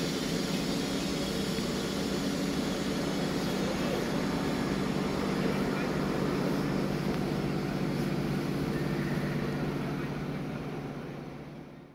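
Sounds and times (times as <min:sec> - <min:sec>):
freight train hum and rumble: 0:00.0 - 0:11.9.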